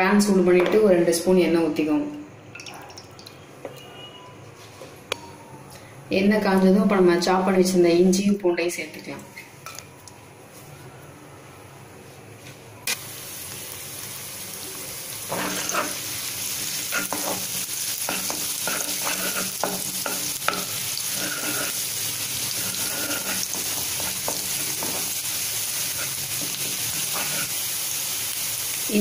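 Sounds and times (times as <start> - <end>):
garlic sizzling in hot oil: 12.9 - 29.0
spatula knocking and scraping pan: 15.3 - 16.0, 16.6 - 25.2, 25.9 - 27.6.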